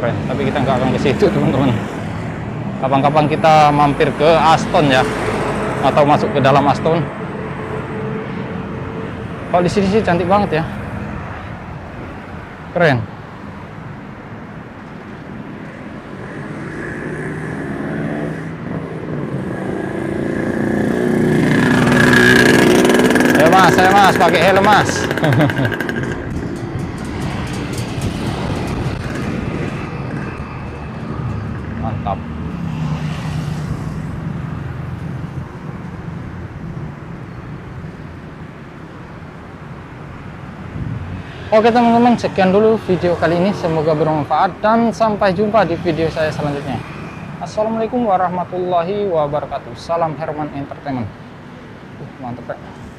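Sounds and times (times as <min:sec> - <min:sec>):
cars and motorbikes passing: 0:00.0 - 0:52.9
road traffic hum: 0:00.0 - 0:52.9
vehicle engine passing close: 0:16.3 - 0:35.6.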